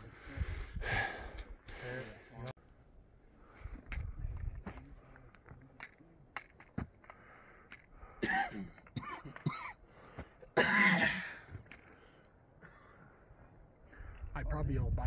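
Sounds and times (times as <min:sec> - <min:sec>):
person breathing hard: 0:00.0 - 0:02.2, 0:07.0 - 0:08.2
footsteps on rocky ground: 0:03.6 - 0:07.9
person coughing harshly: 0:08.2 - 0:09.8, 0:10.5 - 0:11.4.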